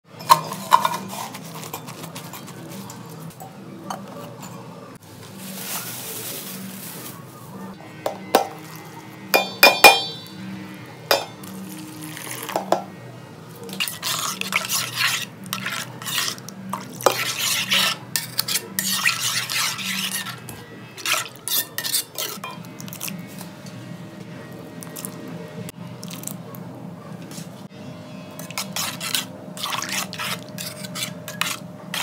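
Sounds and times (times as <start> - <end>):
stirring and scraping paste: 0.4 - 3.2, 13.7 - 22.4, 28.4 - 32.0
metal spoon clinking on bowl: 9.4 - 10.4, 11.1 - 11.4.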